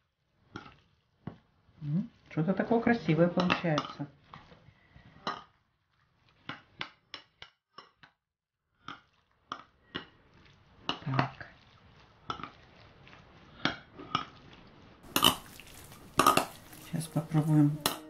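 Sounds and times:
spoon scraping ceramic bowl: 0:15.1 - 0:18.0.

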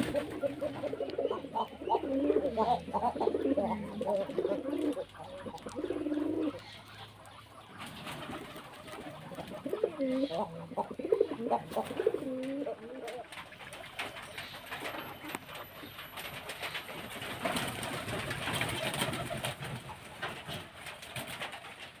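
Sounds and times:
low wavering cooing call: 0:00.0 - 0:06.8
small animals gnawing and crunching: 0:00.0 - 0:22.0.

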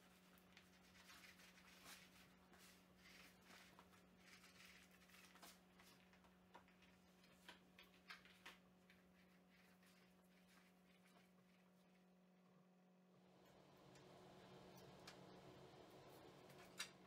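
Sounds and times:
glue spreading rustle: 0:00.1 - 0:12.0
steady low hum: 0:08.9 - 0:17.0.

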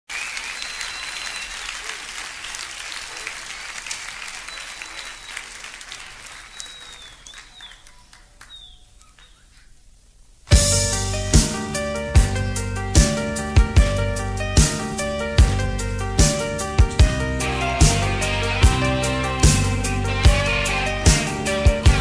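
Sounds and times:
high whistles: 0:00.1 - 0:02.1, 0:04.2 - 0:09.7
audience applauding: 0:00.1 - 0:09.4
band loud hit: 0:10.5 - 0:22.0.

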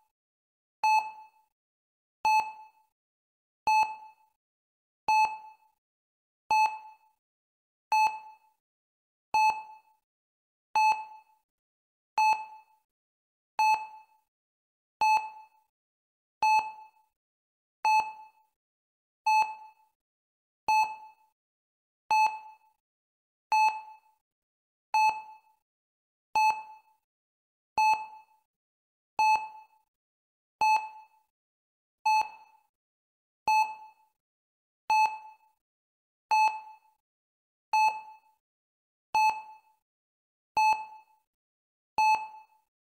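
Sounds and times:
heart rate monitor beeping: 0:00.8 - 0:01.2, 0:02.2 - 0:02.6, 0:03.7 - 0:04.1, 0:06.5 - 0:06.9, 0:07.9 - 0:08.3, 0:09.4 - 0:09.7, 0:12.2 - 0:12.6, 0:13.6 - 0:14.0, 0:15.0 - 0:15.4, 0:16.4 - 0:16.8, 0:19.3 - 0:19.6, 0:20.7 - 0:21.0, 0:23.5 - 0:23.9, 0:25.0 - 0:25.3, 0:26.4 - 0:26.8, 0:27.8 - 0:28.2, 0:29.2 - 0:29.8, 0:30.6 - 0:31.0, 0:32.0 - 0:32.6, 0:33.5 - 0:34.0, 0:34.9 - 0:35.3, 0:36.3 - 0:37.0, 0:37.8 - 0:38.1, 0:39.2 - 0:39.6, 0:40.6 - 0:41.1, 0:42.0 - 0:42.4.

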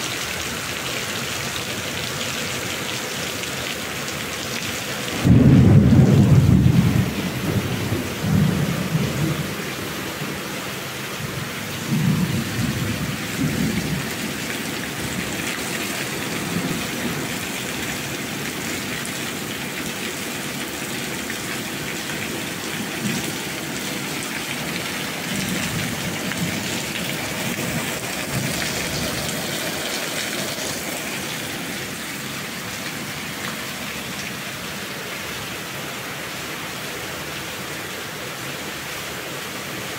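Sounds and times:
steady rain: 0:00.0 - 0:39.9
rolling thunder: 0:05.2 - 0:09.6, 0:11.9 - 0:14.2.

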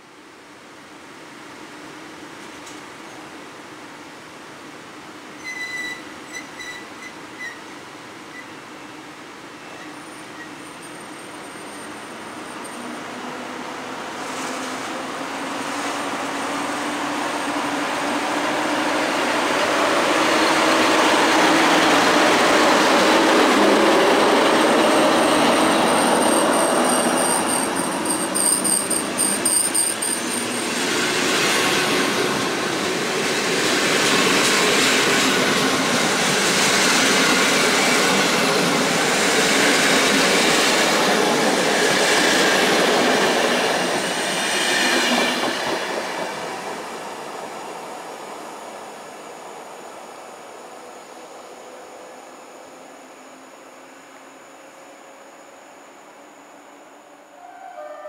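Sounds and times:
thin high squeal: 0:05.4 - 0:08.6, 0:24.9 - 0:30.8, 0:57.4 - 0:58.0
train wheels rumbling on rails: 0:09.9 - 0:48.6.

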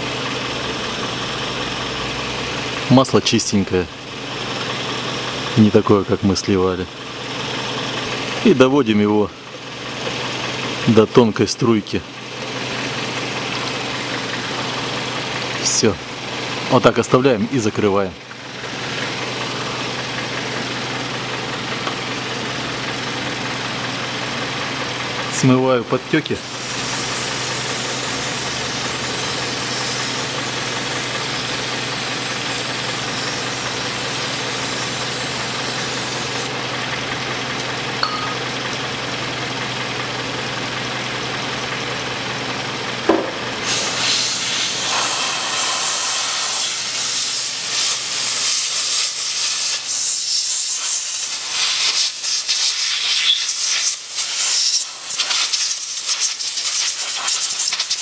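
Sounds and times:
car engine idling: 0:00.0 - 0:55.9
aerosol spray hissing: 0:43.6 - 0:58.0.

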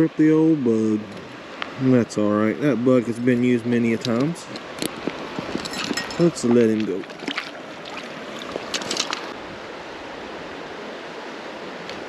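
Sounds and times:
creek water flowing: 0:00.0 - 0:12.0.

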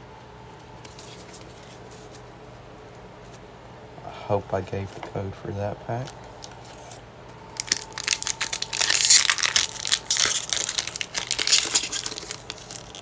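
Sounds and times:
foil wrapper crinkling and tearing: 0:07.6 - 0:13.0.

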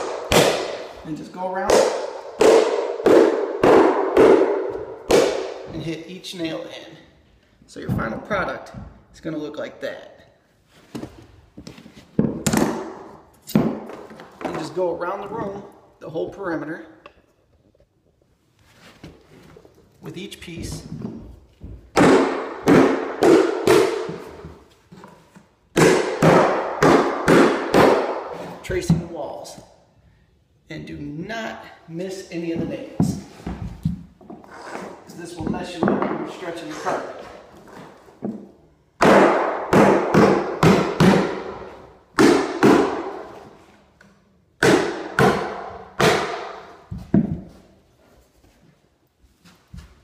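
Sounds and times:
hammer striking nails: 0:00.0 - 0:00.9, 0:01.7 - 0:05.7, 0:21.9 - 0:24.4, 0:25.7 - 0:28.4, 0:39.0 - 0:43.3, 0:44.6 - 0:47.3.

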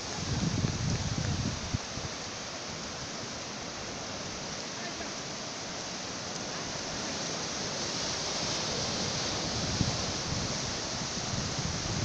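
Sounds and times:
surf breaking on beach: 0:04.0 - 0:12.0.

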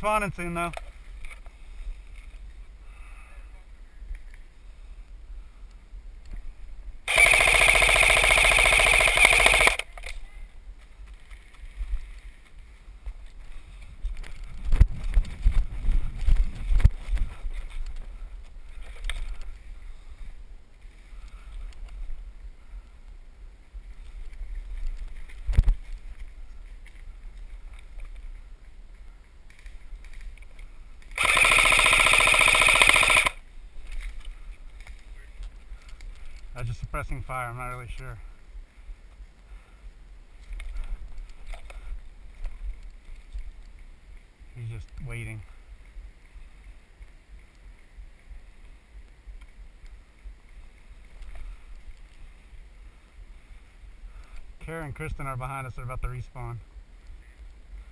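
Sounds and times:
airsoft rifle full-auto burst: 0:07.1 - 0:09.9, 0:31.2 - 0:33.4.

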